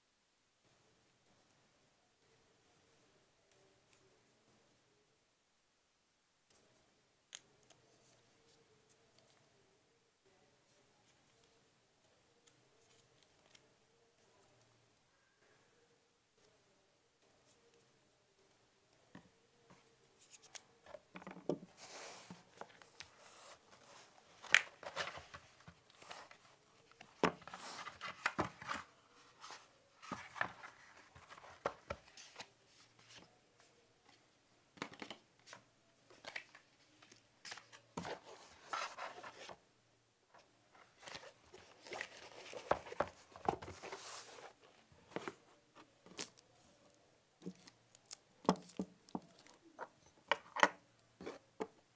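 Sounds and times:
paper leaflets rustling: 0:21.8 - 0:33.3.

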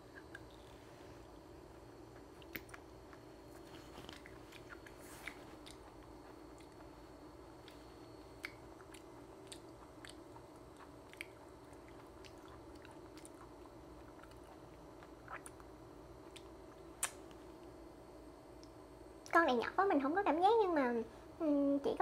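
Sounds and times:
faint chewing: 0:00.0 - 0:17.8
low room hum: 0:00.0 - 0:22.0
soft mouth clicks: 0:16.3 - 0:17.4.

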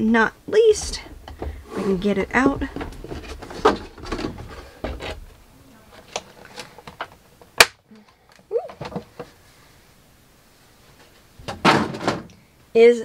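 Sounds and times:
packaging rustling and knocking: 0:02.4 - 0:05.4
sharp loud snap: 0:07.6 - 0:07.8.

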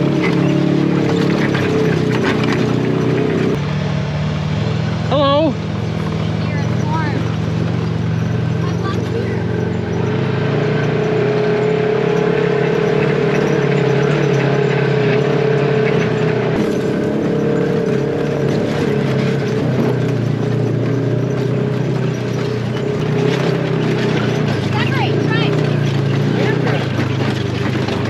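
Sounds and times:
clicks and rattles: 0:00.0 - 0:03.6, 0:12.2 - 0:28.0
vehicle engine droning: 0:00.0 - 0:28.0.

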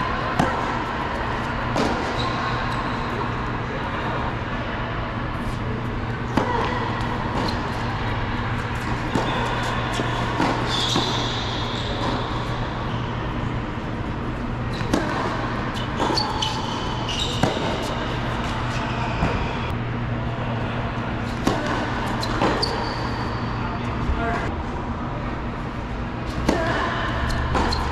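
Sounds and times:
steady low hum: 0:00.0 - 0:27.9
racket hitting tennis ball: 0:00.3 - 0:02.2, 0:08.8 - 0:12.7, 0:14.8 - 0:18.4, 0:21.2 - 0:22.8, 0:26.3 - 0:27.9
shoes squeaking on court: 0:01.8 - 0:03.2, 0:06.6 - 0:13.1, 0:14.6 - 0:19.7, 0:21.3 - 0:23.6, 0:27.3 - 0:27.9.

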